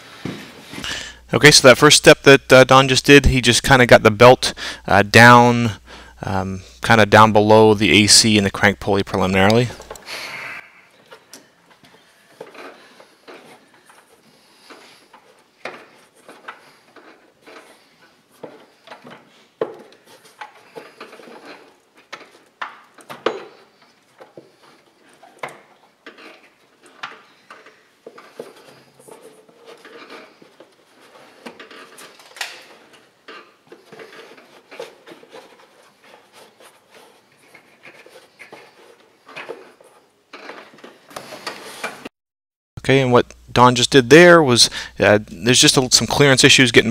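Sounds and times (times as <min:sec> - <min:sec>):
rubber belt knocking and rubbing: 0:11.0 - 0:42.1.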